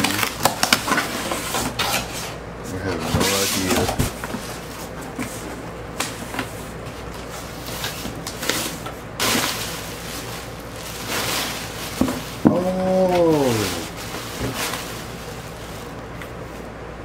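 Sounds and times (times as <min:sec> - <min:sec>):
crinkling plastic packing: 0:00.0 - 0:01.7, 0:07.2 - 0:16.6
person's voice: 0:12.4 - 0:14.0.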